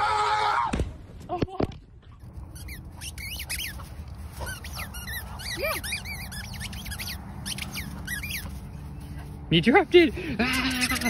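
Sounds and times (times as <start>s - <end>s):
squeaky toy squeaks: 2.5s - 8.9s, 10.4s - 11.0s.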